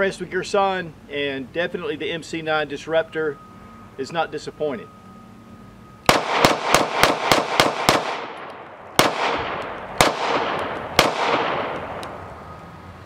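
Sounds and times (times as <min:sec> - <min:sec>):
pistol shots: 0:06.1 - 0:12.2.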